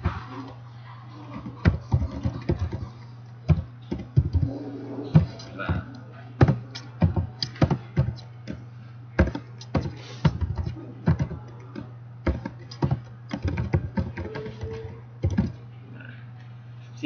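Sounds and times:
low electrical hum: 0.0 - 17.0
keyboard typing: 1.4 - 5.6, 6.4 - 8.6, 9.2 - 15.6.

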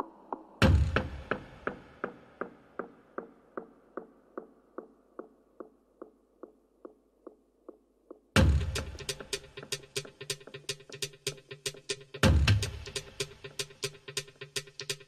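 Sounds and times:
electronic beat with drums: 0.0 - 15.0
electronic music pitched ticks: 7.6 - 15.0.

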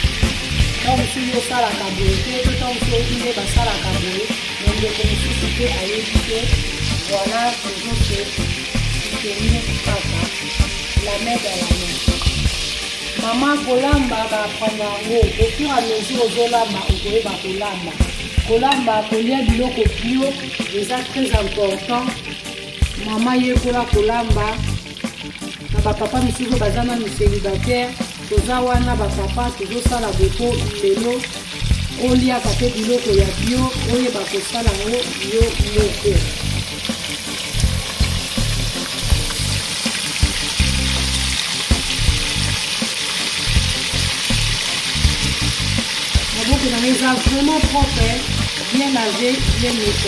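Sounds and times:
background music: 0.0 - 50.0
fish sizzling in hot oil: 0.0 - 50.0
song with a regular beat: 8.0 - 13.3, 18.0 - 18.7, 21.4 - 26.0, 31.3 - 32.0, 34.7 - 48.6.

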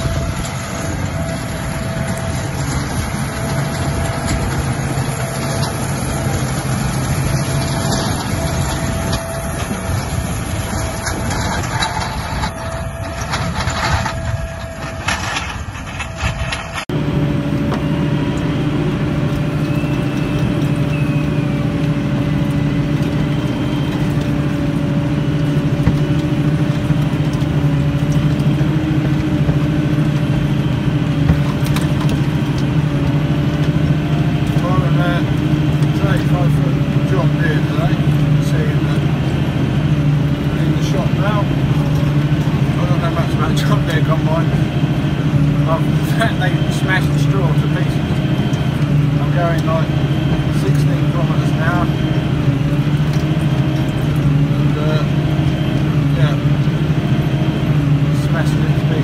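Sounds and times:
tractor and baler passing: 0.0 - 59.0
tractor engine from inside cab: 0.0 - 59.0.

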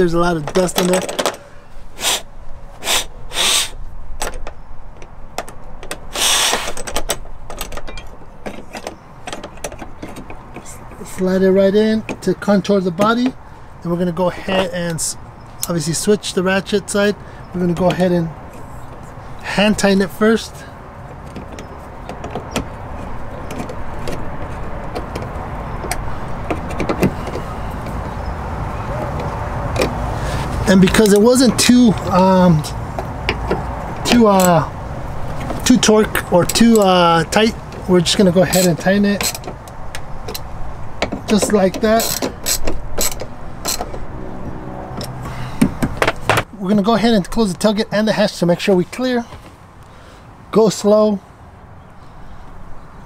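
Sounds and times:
short scraping rushes: 1.4 - 3.9, 6.1 - 6.9
ratchet clicking: 42.0 - 43.9.

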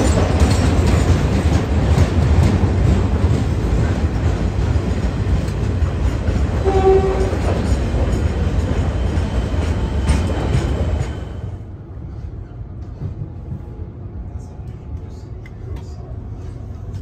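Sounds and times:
electric train arriving: 0.0 - 17.0
short train horn toot: 6.6 - 7.5.

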